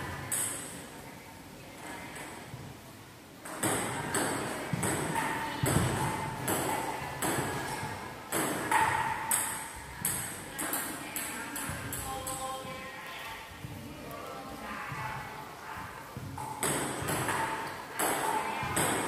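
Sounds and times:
table tennis ball hits: 0:03.4 - 0:12.4, 0:16.3 - 0:19.0.

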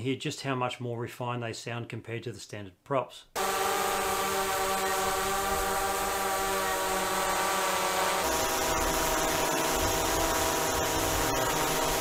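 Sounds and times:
drone hovering hum: 0:03.4 - 0:12.0.

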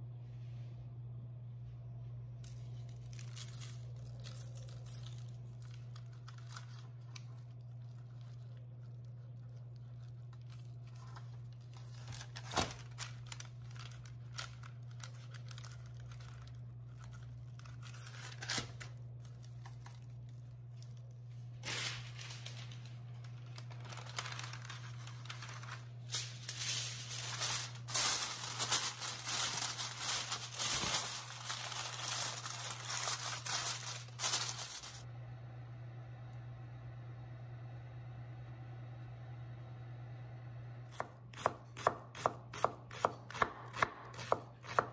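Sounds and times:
steady low hum: 0:00.0 - 0:42.9
aluminium foil crinkling: 0:02.4 - 0:35.0.

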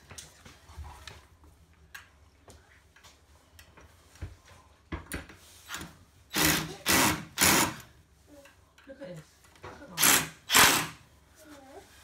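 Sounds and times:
impact driver burst: 0:06.3 - 0:07.9, 0:10.0 - 0:11.0.

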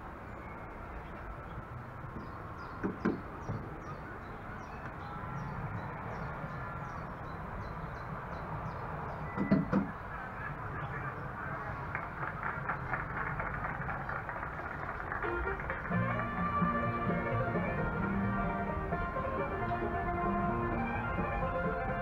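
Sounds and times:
birds chirping: 0:00.0 - 0:22.0
knocks: 0:02.8 - 0:03.7, 0:09.4 - 0:09.9.

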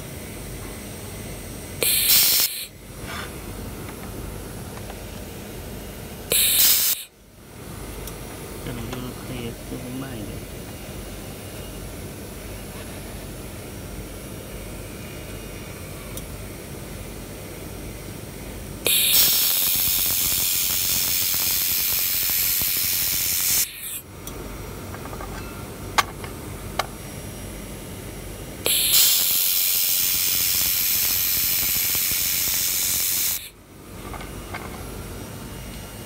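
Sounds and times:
laser welding gun hissing: 0:01.8 - 0:02.8, 0:06.3 - 0:07.1, 0:18.8 - 0:24.0, 0:28.6 - 0:33.6.

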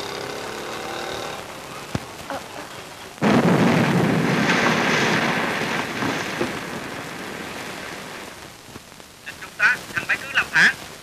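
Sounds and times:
motorbike engines running: 0:00.0 - 0:02.2
loud explosion: 0:03.2 - 0:08.3.

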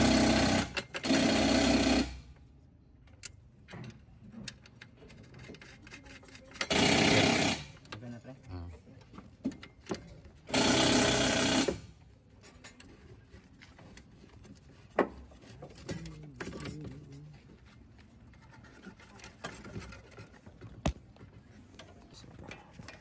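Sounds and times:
impact wrench running: 0:00.0 - 0:02.4, 0:05.6 - 0:08.0, 0:10.4 - 0:12.0.

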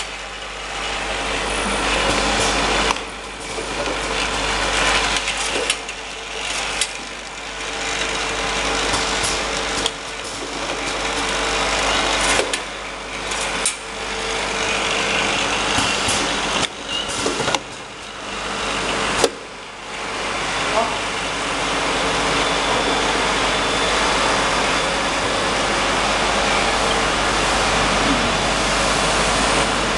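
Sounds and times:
labeling machine whirring: 0:00.0 - 0:20.5.

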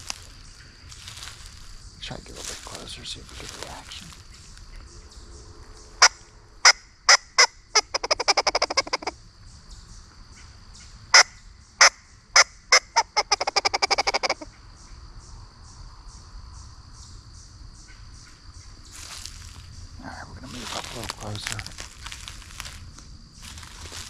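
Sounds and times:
squirrel call barks: 0:06.0 - 0:09.2, 0:11.1 - 0:14.5.

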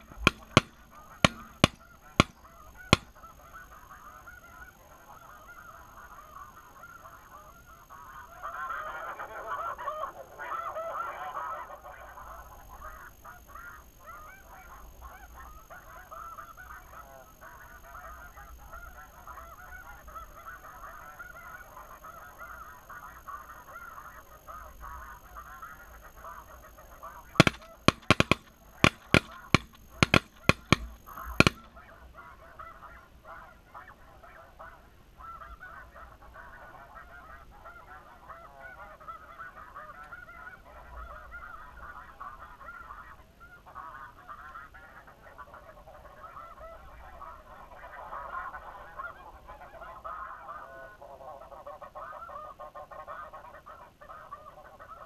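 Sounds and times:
shotgun shots: 0:00.0 - 0:03.2, 0:27.3 - 0:31.7
geese honking: 0:00.0 - 0:55.0.

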